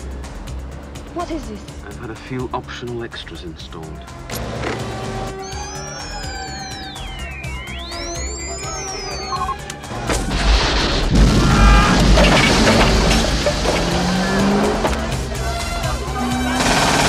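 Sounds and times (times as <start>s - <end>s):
car engine and tyres: 0.0s - 5.4s, 10.8s - 17.0s
orchestral music: 4.4s - 17.0s.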